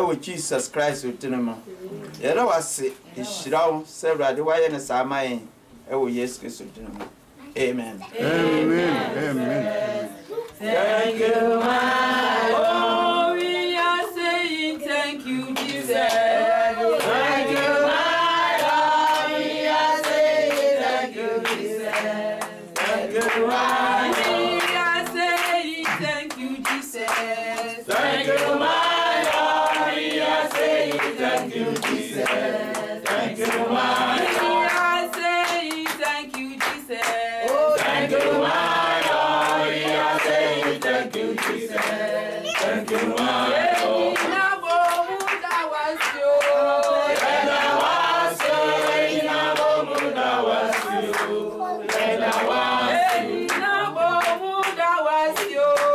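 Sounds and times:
group of people singing: 0:08.0 - 0:55.9
hand-clapping: 0:13.4 - 0:13.8, 0:15.5 - 0:55.9.

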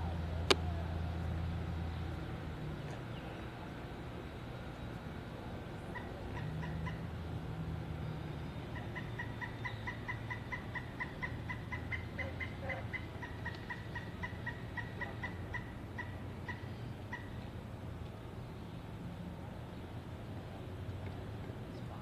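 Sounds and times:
woodpecker call: 0:05.9 - 0:07.1, 0:08.0 - 0:17.4.

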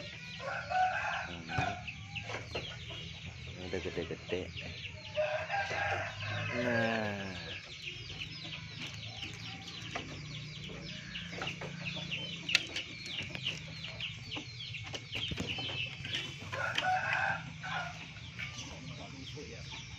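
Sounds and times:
chickens calling: 0:00.0 - 0:19.9.

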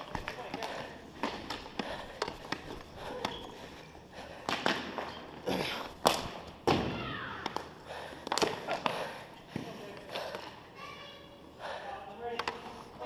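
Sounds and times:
hockey sticks clacking: 0:00.0 - 0:10.6, 0:12.2 - 0:13.0
people shouting: 0:06.8 - 0:07.5.

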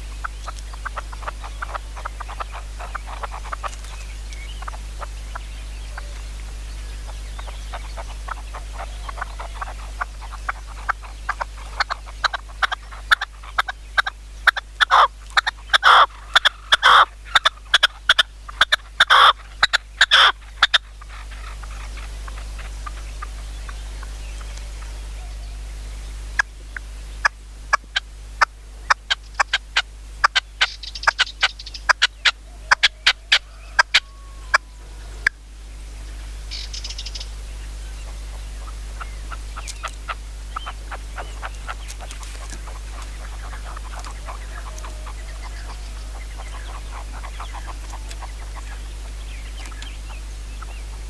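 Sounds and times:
small birds chirping faintly: 0:00.0 - 0:51.0.

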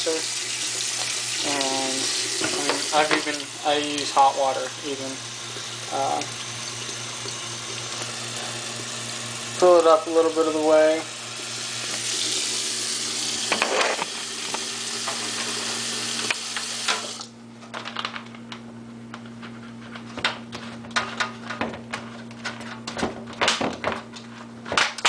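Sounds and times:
tap water running into bottle: 0:00.0 - 0:17.3.

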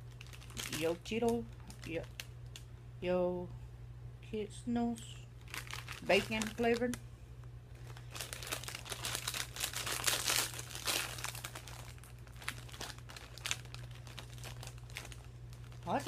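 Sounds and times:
plastic chip bag crackling: 0:00.0 - 0:02.6, 0:05.4 - 0:07.0, 0:07.8 - 0:16.0.

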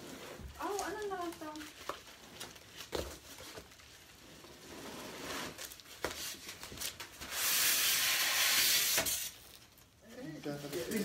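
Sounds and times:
cardboard rustling and scraping: 0:00.0 - 0:07.5.

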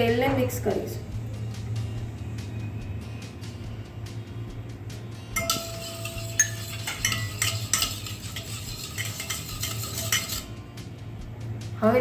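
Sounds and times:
metal bowl ringing: 0:05.3 - 0:10.5
wire whisk scraping metal bowl: 0:05.4 - 0:10.6.

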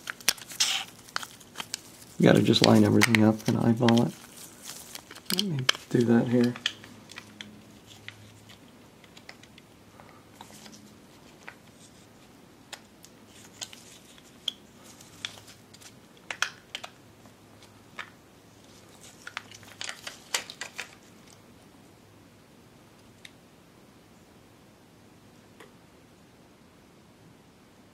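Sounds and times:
faint steady hum: 0:00.0 - 0:27.9
plastic parts clicking: 0:05.0 - 0:07.5.

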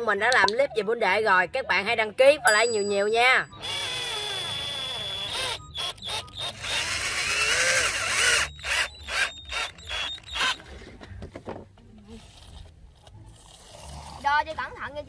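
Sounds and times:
power drill driving screws: 0:03.6 - 0:10.6.

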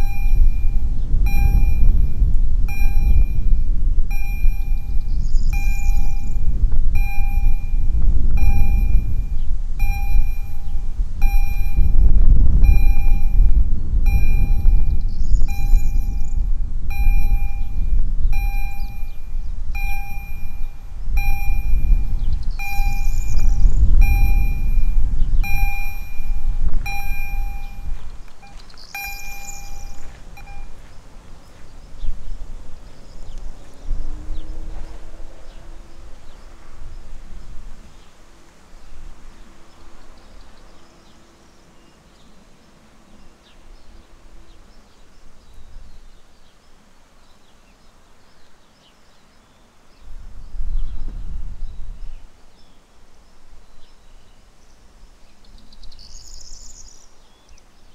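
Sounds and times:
level crossing bell ringing: 0:00.0 - 0:12.0, 0:14.1 - 0:30.8
low rumble: 0:00.0 - 0:37.6.

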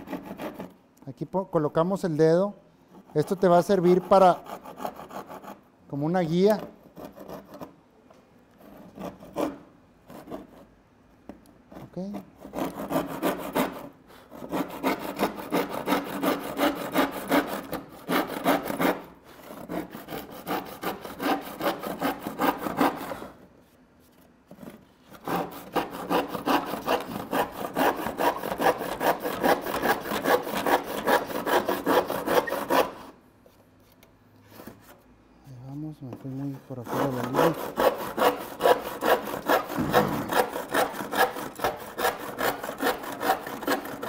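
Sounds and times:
handsaw cutting wood: 0:00.0 - 0:00.8, 0:03.2 - 0:05.6, 0:08.7 - 0:10.6, 0:12.4 - 0:23.4, 0:25.1 - 0:33.2, 0:36.7 - 0:44.0.

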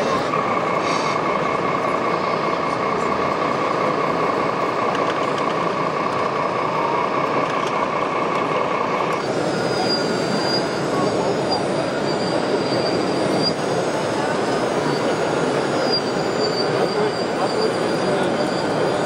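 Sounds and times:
fainter higher whine: 0:00.0 - 0:19.0
hall background noise: 0:00.0 - 0:19.0.

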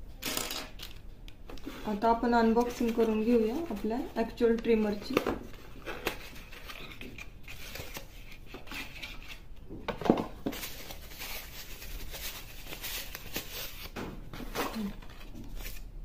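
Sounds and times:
paper wrapping crinkling: 0:01.6 - 0:05.0, 0:10.4 - 0:15.9.

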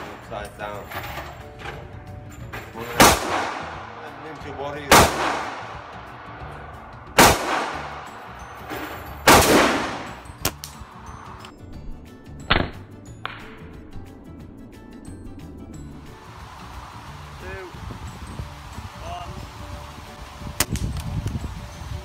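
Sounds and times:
light sharp cracks: 0:10.4 - 0:10.8.

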